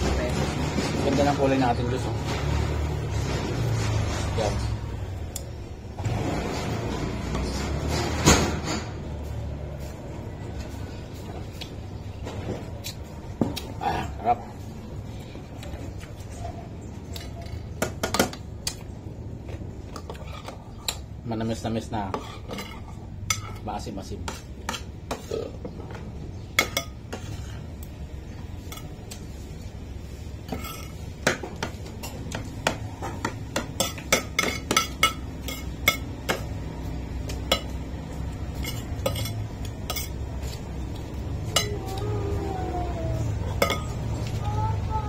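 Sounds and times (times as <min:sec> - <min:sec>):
spoon clinking on ceramic plates: 0:33.6 - 0:36.6, 0:37.4 - 0:40.2, 0:43.5 - 0:44.1.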